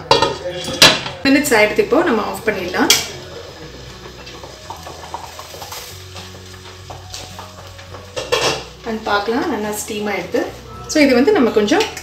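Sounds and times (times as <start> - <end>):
water boiling: 0.0 - 12.0
steam hissing: 1.8 - 6.2.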